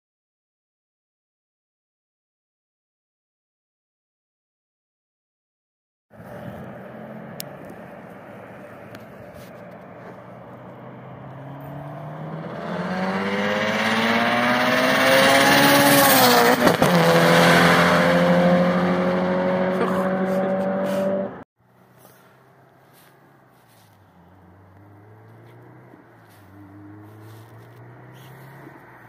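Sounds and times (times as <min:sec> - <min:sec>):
car engine accelerating past: 0:06.2 - 0:29.0.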